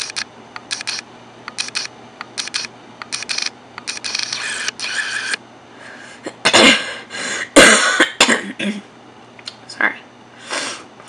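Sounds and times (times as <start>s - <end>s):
camera autofocus motor whirring: 0.0s - 5.4s
person coughing: 6.3s - 8.9s.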